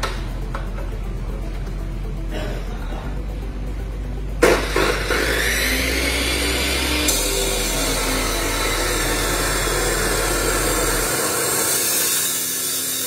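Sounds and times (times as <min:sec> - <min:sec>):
chop saw grinding steel: 0:04.4 - 0:13.0.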